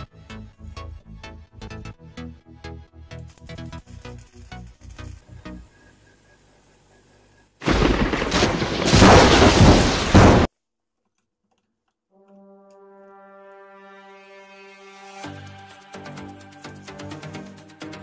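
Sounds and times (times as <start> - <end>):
welding arc crackling: 3.2 - 5.6, 7.6 - 10.5
horn-like background music note: 12.1 - 17.4.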